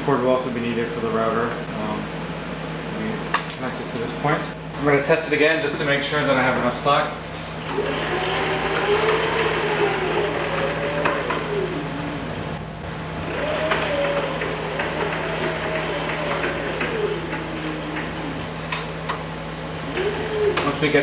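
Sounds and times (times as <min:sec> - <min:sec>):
roller chain drive whine: 0:07.6 - 0:21.0.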